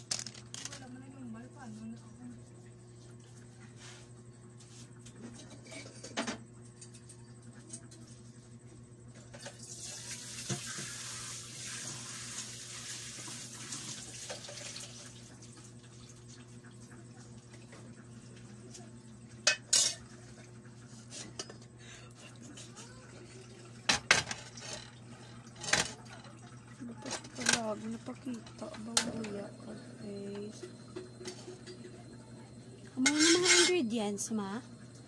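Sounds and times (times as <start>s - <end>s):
water running in sink: 9.3s - 35.0s
dishes clinking: 19.4s - 20.2s, 33.0s - 33.9s.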